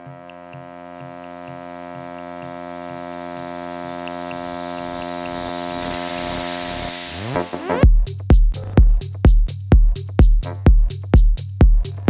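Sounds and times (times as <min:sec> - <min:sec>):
rising synth sweep: 0:00.0 - 0:07.8
synthesizer drone: 0:00.0 - 0:07.9
low pulsing beat: 0:00.0 - 0:12.0.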